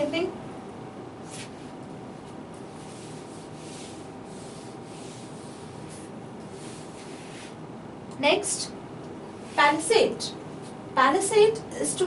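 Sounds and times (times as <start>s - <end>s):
hand rubbing across a board: 1.2s - 7.7s.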